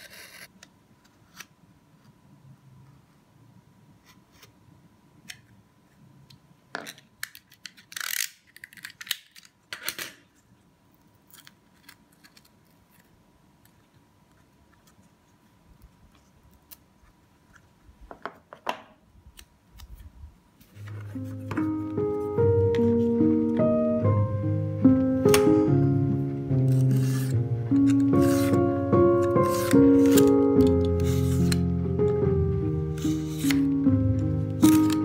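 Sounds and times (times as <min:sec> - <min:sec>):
craft knife cutting tape and paper: 0:00.0 - 0:00.5, 0:07.6 - 0:09.5, 0:26.6 - 0:31.7, 0:32.9 - 0:33.7, 0:34.6 - 0:35.0
tape being pulled free: 0:26.6 - 0:31.7, 0:32.9 - 0:33.7.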